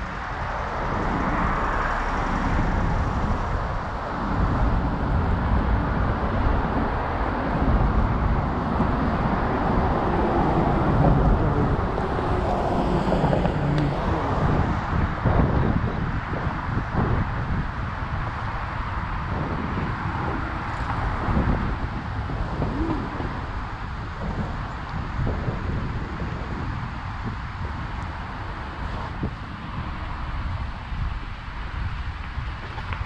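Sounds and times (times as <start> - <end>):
wind buffeting microphone: 0.0 - 33.0.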